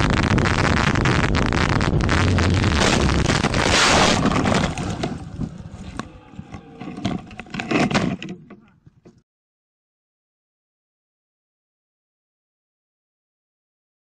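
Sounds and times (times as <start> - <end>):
loud crash impact: 0.0 - 5.6
glass breaking and scraping: 2.8 - 5.4.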